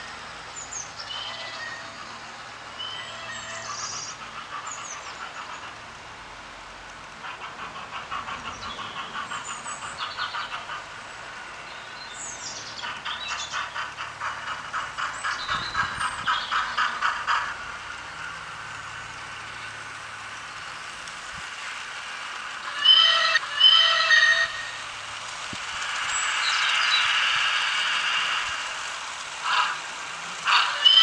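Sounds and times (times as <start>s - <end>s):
birds chirping: 0.0s - 5.8s, 7.2s - 17.6s, 26.0s - 27.2s
model steam locomotive chuffing: 0.0s - 31.0s.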